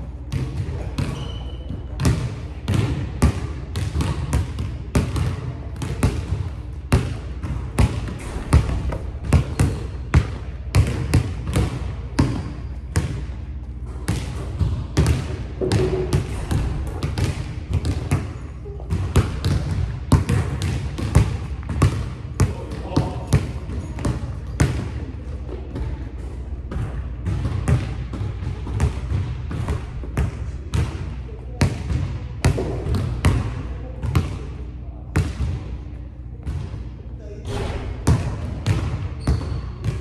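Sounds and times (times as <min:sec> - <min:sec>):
basketball bouncing on wooden floor: 0:00.3 - 0:13.3, 0:14.1 - 0:24.9.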